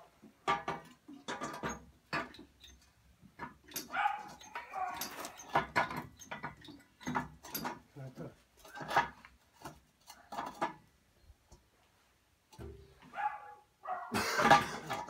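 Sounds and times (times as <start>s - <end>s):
metal tools clanking: 0.5s - 8.0s, 8.6s - 10.8s, 14.2s - 15.0s
dog barking and yelping: 3.8s - 5.3s, 13.1s - 14.2s.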